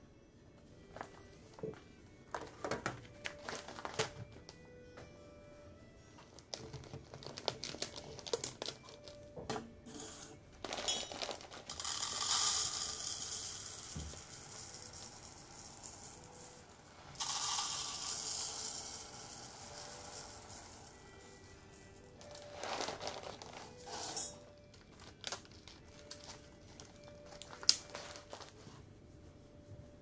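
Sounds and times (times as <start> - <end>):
plastic bag crinkling: 3.2 - 4.1, 6.5 - 9.2, 10.6 - 12.2, 19.0 - 23.9, 24.5 - 28.6
dry rice pouring: 10.7 - 24.3.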